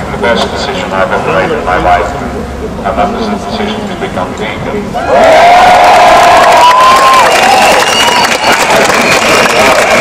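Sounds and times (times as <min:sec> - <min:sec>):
crowd applauding and cheering: 0:05.0 - 0:10.0.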